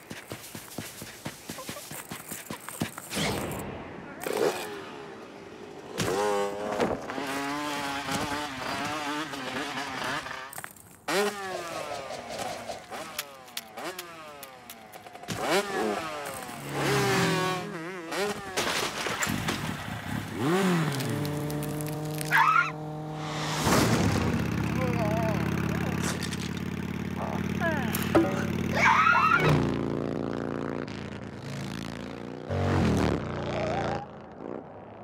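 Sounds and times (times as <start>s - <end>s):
cartoon bird squawks and yelps: 22.3s - 22.8s, 28.7s - 29.6s.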